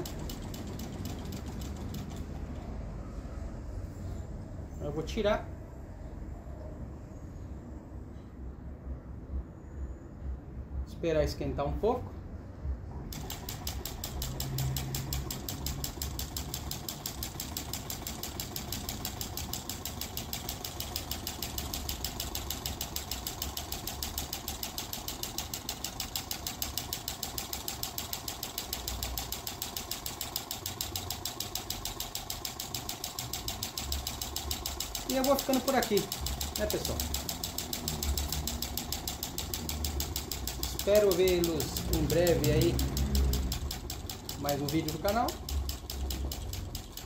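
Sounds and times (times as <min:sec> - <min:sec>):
small engine mechanical clatter: 0:00.0 - 0:02.8, 0:13.1 - 0:47.0.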